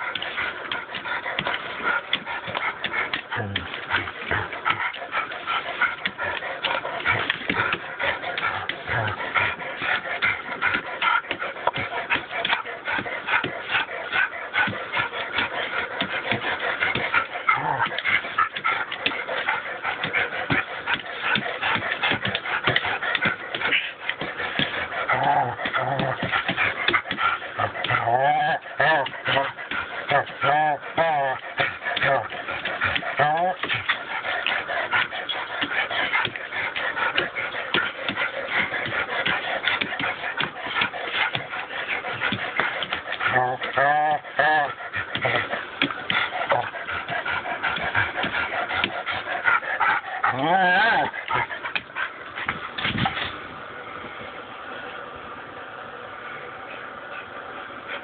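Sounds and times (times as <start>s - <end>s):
dog vocal sounds: 0.0s - 53.5s.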